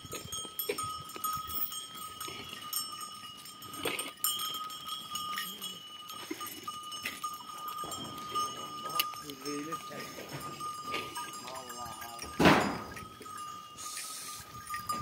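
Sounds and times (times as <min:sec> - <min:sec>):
bell clinks: 0:00.0 - 0:15.0
hooves shuffling: 0:00.0 - 0:15.0
knocks and clanks: 0:12.2 - 0:13.1.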